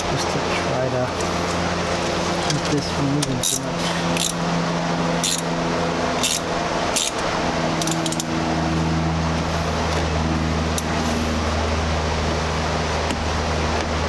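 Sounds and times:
mechanical hum and hiss: 0.0s - 14.0s
metal clicks of pliers and wrench: 2.4s - 4.4s, 5.2s - 5.4s, 6.2s - 6.4s, 7.0s - 7.2s, 7.8s - 8.3s.

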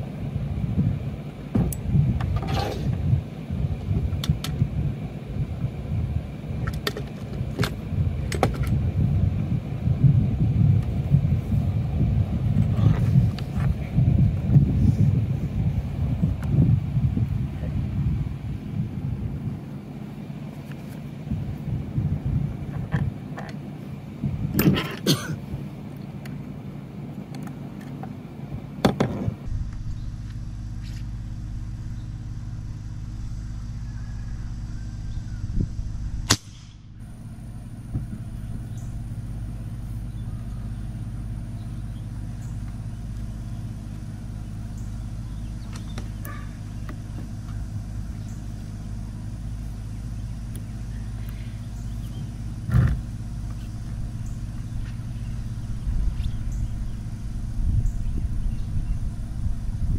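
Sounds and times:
low outdoor rumble: 0.0s - 59.9s
air rifle shot: 36.2s - 36.9s.

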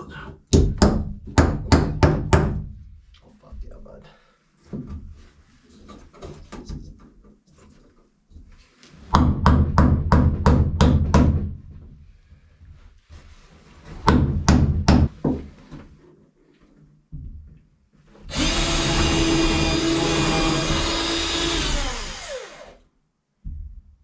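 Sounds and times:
hammer striking nails into wood: 0.5s - 2.6s, 9.2s - 11.4s, 14.1s - 15.1s
cordless drill running: 18.3s - 22.8s.

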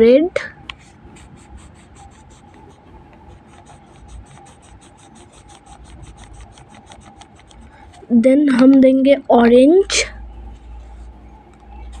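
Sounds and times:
wax crayon scratching on paper: 0.8s - 8.0s.

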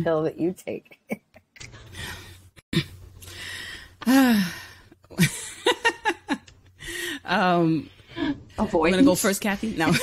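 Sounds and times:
woman sighing: 3.3s - 4.9s
women laughing: 5.1s - 6.5s.

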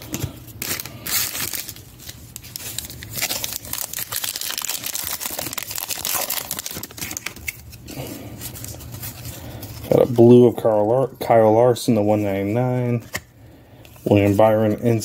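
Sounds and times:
foil wrapper crinkling and tearing: 0.0s - 10.4s.

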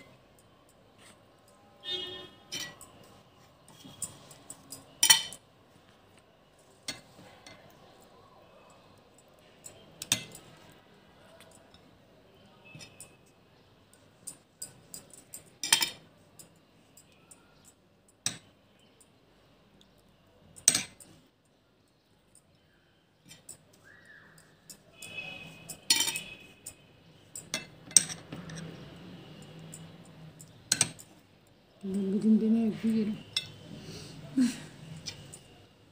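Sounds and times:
metal spoon clinking glass bowl: 1.8s - 3.1s, 3.7s - 5.4s, 9.6s - 10.7s, 13.9s - 18.5s, 20.6s - 21.2s, 24.4s - 31.2s, 32.0s - 33.7s.

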